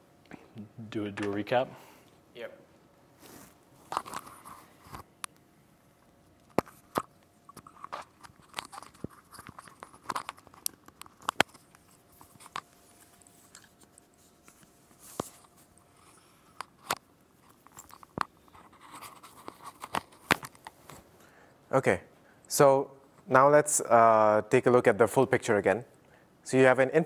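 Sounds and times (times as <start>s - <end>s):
cloth rustling: 7.6s - 21.2s.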